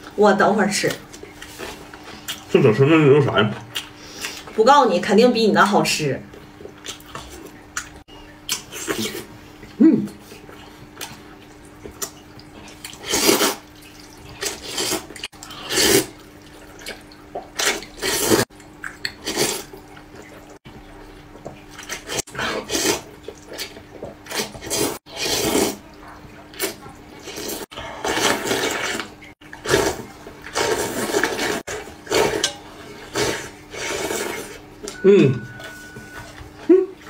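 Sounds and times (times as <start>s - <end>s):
person slurping noodles: 12.9s - 13.6s, 14.4s - 16.1s, 17.6s - 18.4s, 22.0s - 23.1s, 24.3s - 25.8s, 26.6s - 34.6s.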